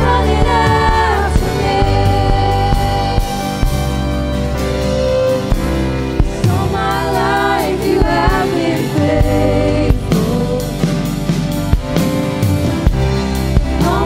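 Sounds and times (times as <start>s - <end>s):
woman singing lead vocal: 0.0s - 3.8s, 6.4s - 11.2s, 13.7s - 14.0s
worship band playing: 0.0s - 14.0s.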